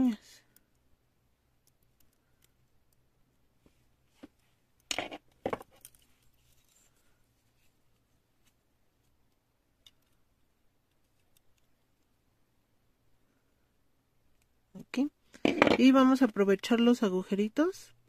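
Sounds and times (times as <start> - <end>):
small metal clicks: 1.6 - 3.0, 9.3 - 12.1.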